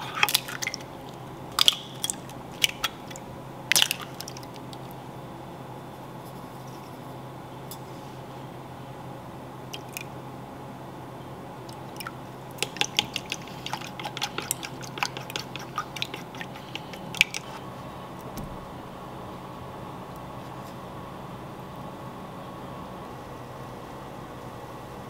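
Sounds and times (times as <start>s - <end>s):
faint steady hum: 0.0s - 25.0s
wooden spoon beating eggs in bowl: 12.6s - 17.8s.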